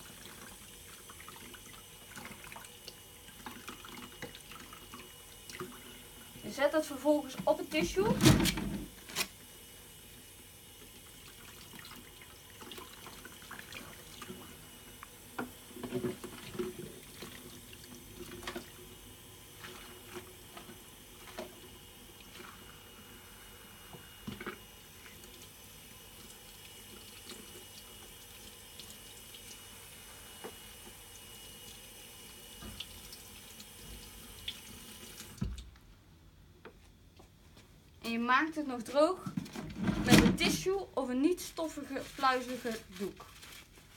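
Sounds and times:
tap water running into steel sink: 0.0s - 9.0s, 10.7s - 22.8s, 23.8s - 35.7s.

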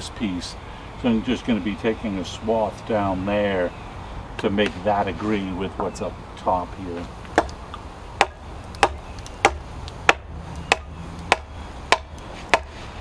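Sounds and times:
hatchet chopping wood: 7.2s - 7.6s, 8.2s - 12.8s.

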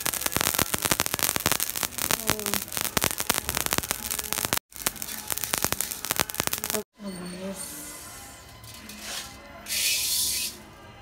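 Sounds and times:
spice seeds crackling and popping: 0.0s - 6.8s.

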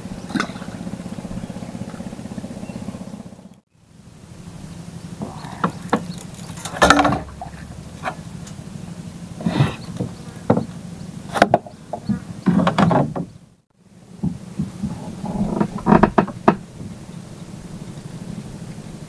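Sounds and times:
small boat engine idling: 0.0s - 19.0s
knocks in wooden boat: 5.5s - 8.2s, 9.5s - 13.4s, 14.2s - 16.7s.

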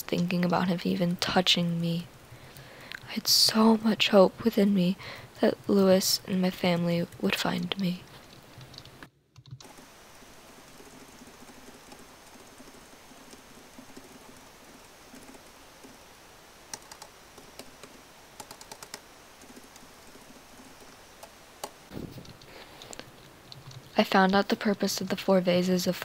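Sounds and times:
light typing on a laptop keyboard: 8.1s - 16.0s, 16.7s - 24.4s.

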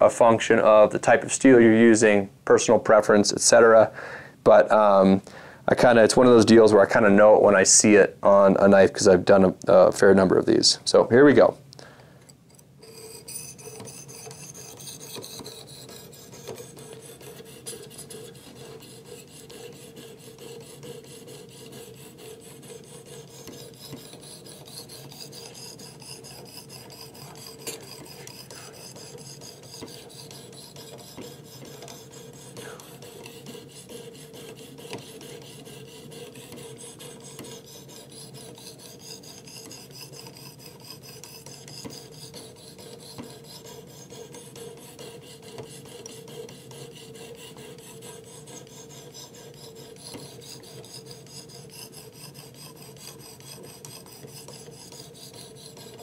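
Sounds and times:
sharpener scraping knife edge: 12.5s - 56.0s.

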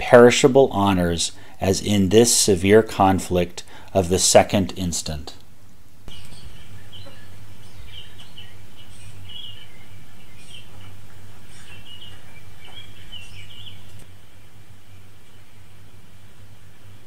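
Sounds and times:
steady low hum: 0.0s - 17.0s
small birds chirping: 5.9s - 17.0s.

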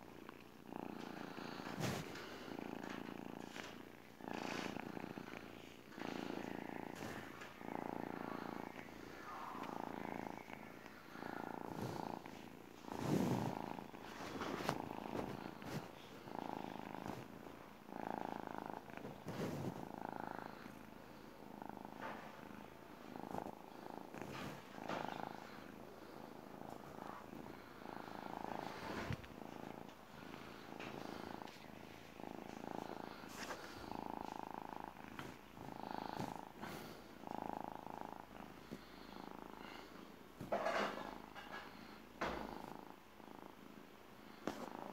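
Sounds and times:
kitten purring: 0.0s - 44.9s
knocks and rustles: 40.4s - 42.7s.

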